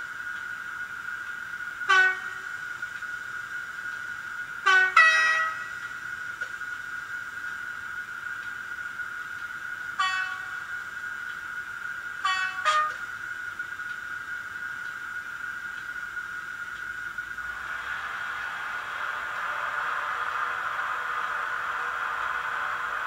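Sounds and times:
high-pitched electric train whine: 0.0s - 23.0s
train horn blasts: 1.8s - 2.7s, 4.6s - 6.0s, 10.0s - 10.8s, 12.2s - 13.1s
two-note train horn: 1.8s - 2.7s, 4.6s - 6.0s, 10.0s - 10.8s, 12.2s - 13.2s.

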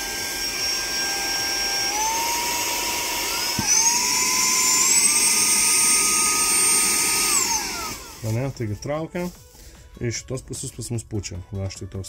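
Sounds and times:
handheld vacuum motor whining: 0.0s - 8.6s.

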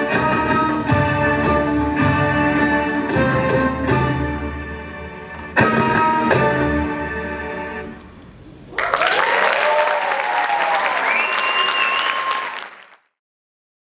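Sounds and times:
music: 0.0s - 8.4s
cheering voices: 8.7s - 13.0s
audience applause: 8.7s - 13.2s.

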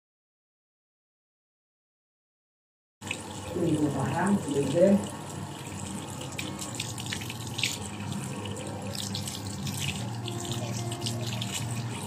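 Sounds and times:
tap water splashing in sink: 5.8s - 12.0s.

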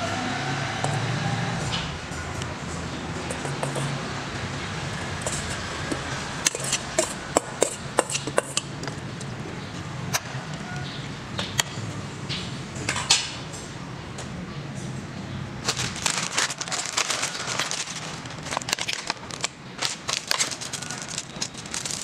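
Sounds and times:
metal utensil scraping cooking pot: 5.0s - 8.7s.

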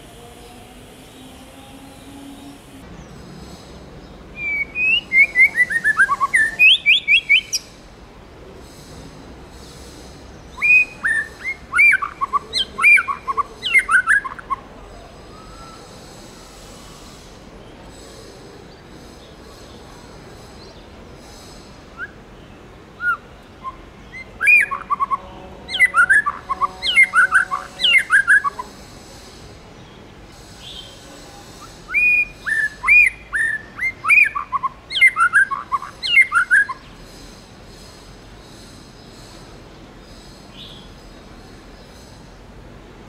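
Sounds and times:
bird singing whistled notes: 4.4s - 7.7s, 10.5s - 14.6s, 15.2s - 17.3s, 21.9s - 22.2s, 23.0s - 28.7s, 31.6s - 36.9s.

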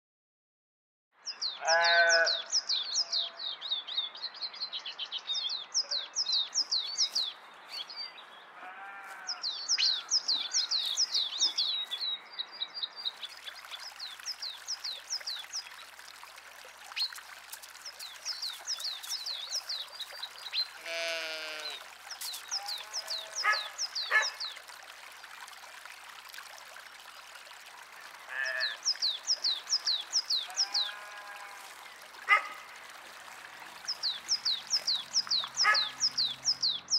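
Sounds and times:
bird chirping: 1.2s - 15.6s, 33.9s - 36.9s
sheep bleating: 1.6s - 2.4s, 8.6s - 9.4s, 20.8s - 21.8s, 22.5s - 23.6s, 28.3s - 28.8s, 30.4s - 31.7s.

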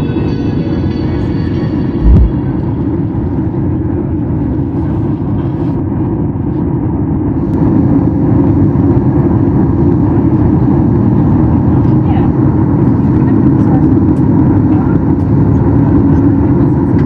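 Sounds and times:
airliner cabin engine rumble: 0.0s - 17.0s
low thump: 2.0s - 2.4s.

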